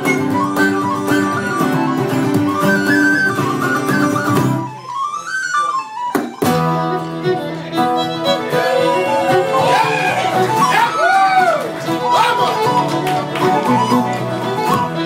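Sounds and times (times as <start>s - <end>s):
solo melody line: 0.0s - 10.8s
traditional band playing: 0.0s - 15.0s.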